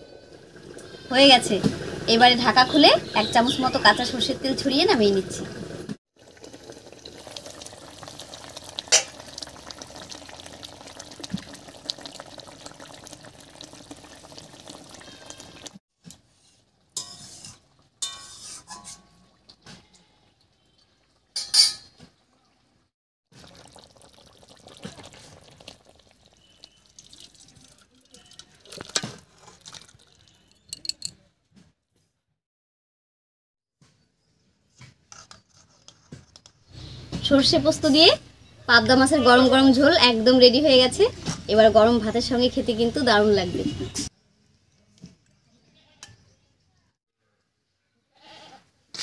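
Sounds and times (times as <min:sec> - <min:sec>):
curry bubbling in a pot: 0:00.1 - 0:15.8, 0:23.3 - 0:30.6
metal spatula scraping a pot: 0:16.3 - 0:20.3
metal lid clinking: 0:17.0 - 0:19.2, 0:21.4 - 0:22.0.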